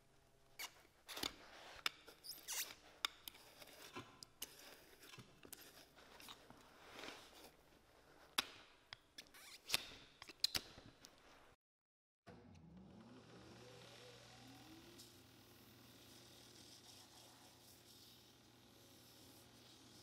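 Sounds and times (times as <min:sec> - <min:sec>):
scratchy scraping: 0:00.6 - 0:08.4.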